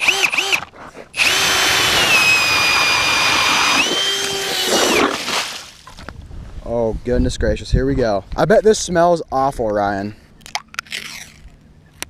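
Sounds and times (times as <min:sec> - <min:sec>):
power ice auger motor whining: 0:00.0 - 0:05.2.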